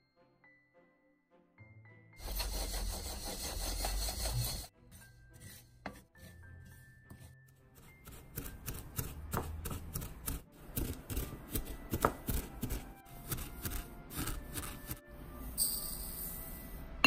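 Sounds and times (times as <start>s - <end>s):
pestle grinding seeds in mortar: 2.2s - 15.0s
wooden spatula stirring seeds in pan: 2.2s - 15.0s.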